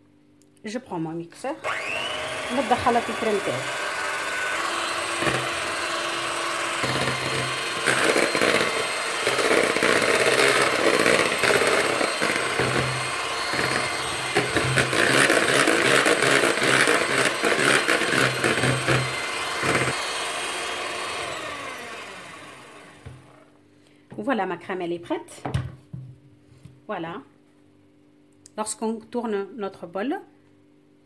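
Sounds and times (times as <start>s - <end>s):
electric hand mixer whipping cream: 1.6s - 23.4s.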